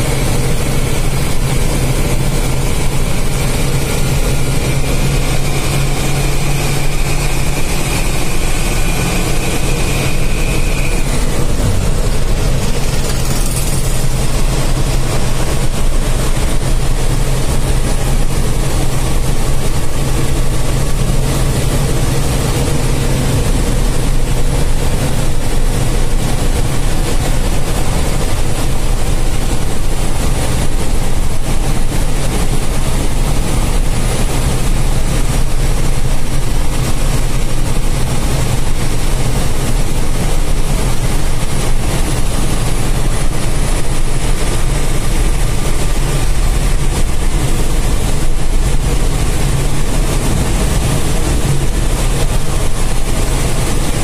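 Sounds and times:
faint high whine: 0.0s - 15.8s
diesel bus engine running: 0.0s - 54.0s
road noise: 0.0s - 54.0s.

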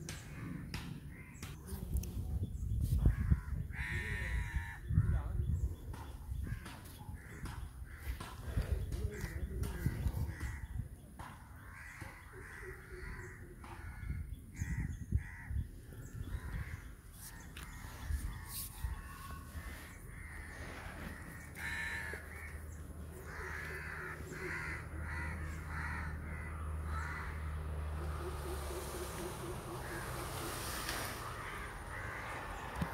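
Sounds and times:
crows cawing: 0.3s - 1.4s, 3.1s - 5.1s, 6.4s - 10.8s, 11.6s - 15.6s, 16.3s - 28.0s, 29.7s - 30.2s, 31.2s - 32.9s.

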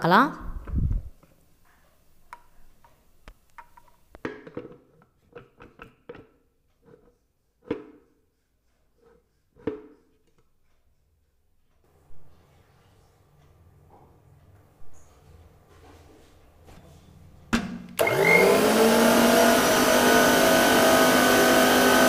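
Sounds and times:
plastic parts clicking and knocking: 2.3s - 7.0s.

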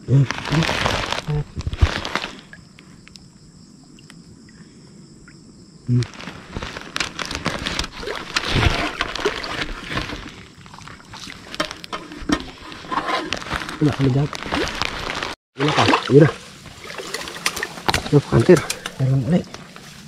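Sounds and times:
insects trilling: 0.0s - 15.2s
splashing shallow water: 6.1s - 11.8s, 12.4s - 20.0s.

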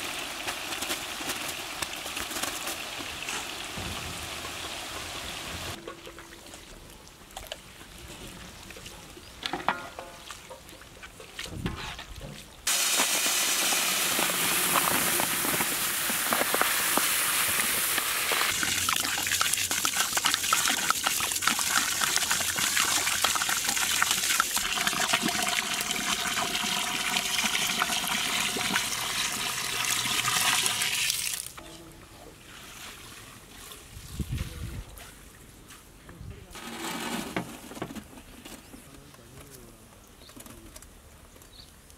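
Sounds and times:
water pouring onto rice: 12.7s - 31.5s.

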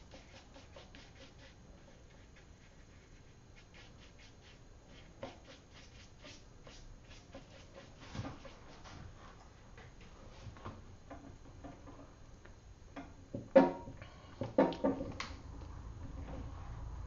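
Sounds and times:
paintbrush swishing on paper: 0.0s - 9.0s.

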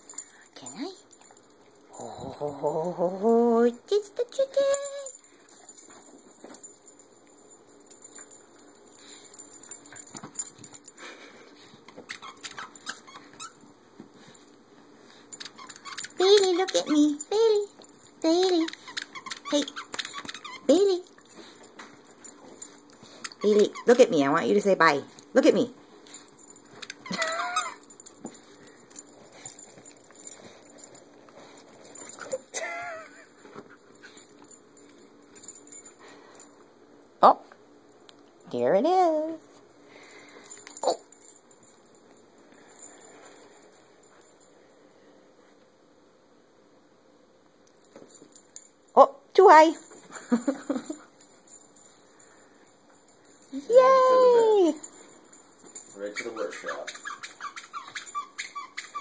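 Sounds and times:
collar tags jingling: 0.0s - 37.0s, 37.8s - 44.8s, 47.7s - 59.0s
dog movement: 15.1s - 32.6s
squeaky dog toy squeaking: 18.3s - 21.1s, 23.3s - 24.4s, 56.1s - 59.0s.

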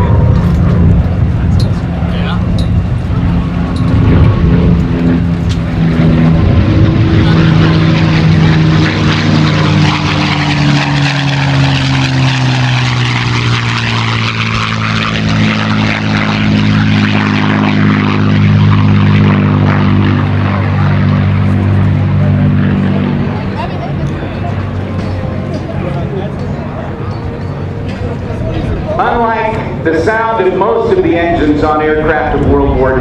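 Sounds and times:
propeller plane engine fly-by: 0.0s - 33.0s.

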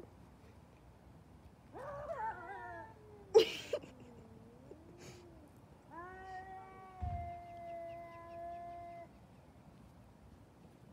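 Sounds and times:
cats yowling and growling: 1.7s - 9.2s.

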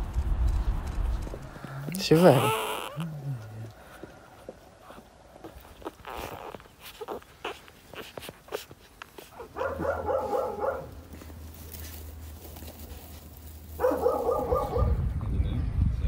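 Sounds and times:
puppies whimpering: 2.1s - 3.2s, 4.8s - 9.6s.

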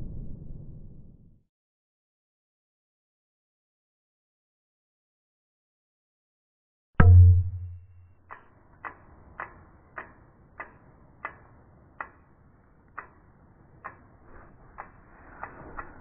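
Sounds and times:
deep boom hit: 7.0s - 7.8s.

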